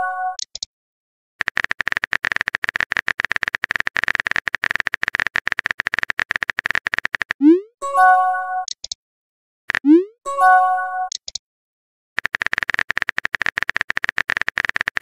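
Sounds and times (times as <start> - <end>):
chiming message tone: 0.0 - 0.4, 7.5 - 8.7, 10.0 - 11.1
phone keyboard typing clicks: 0.3 - 0.7, 1.4 - 7.4, 8.6 - 9.0, 9.7 - 10.0, 11.1 - 11.4, 12.2 - 15.0.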